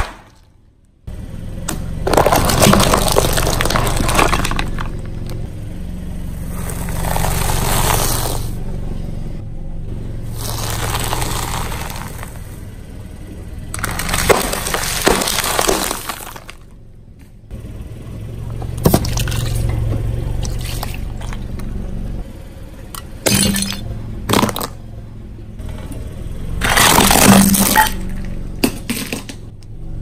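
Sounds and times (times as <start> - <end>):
sharp breaking cracks: 0.0 - 0.5, 1.7 - 5.4, 10.5 - 12.5, 13.8 - 16.7, 26.6 - 29.4
car engine humming: 0.5 - 30.0
tyre crushing objects: 1.7 - 5.4, 6.5 - 8.5, 10.3 - 12.6, 13.8 - 16.7, 23.2 - 24.8, 26.6 - 29.4.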